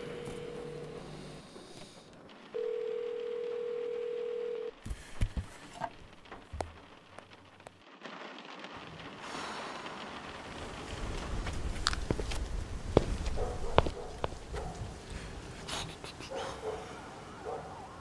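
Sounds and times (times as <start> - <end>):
sharp clicks and knocks: 4.9 - 7.8.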